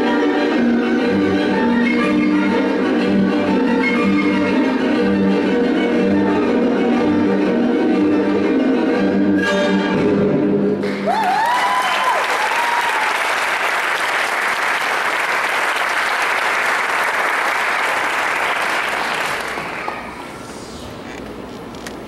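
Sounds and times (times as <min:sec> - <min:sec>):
orchestral ballet music: 0:00.0 - 0:11.0
high cheers: 0:10.8 - 0:13.8
audience applauding: 0:10.8 - 0:20.2.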